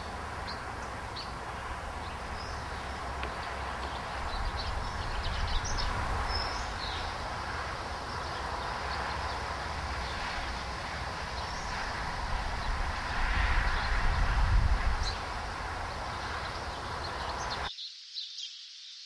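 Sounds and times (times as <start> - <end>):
wind rumbling on microphone: 0.0 - 17.7
steady hiss: 0.0 - 19.0.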